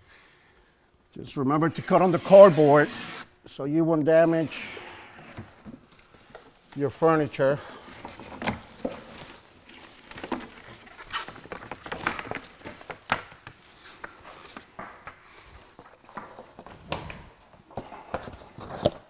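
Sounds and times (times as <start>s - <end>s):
plastic wrap rustling and crinkling: 4.5s - 19.0s.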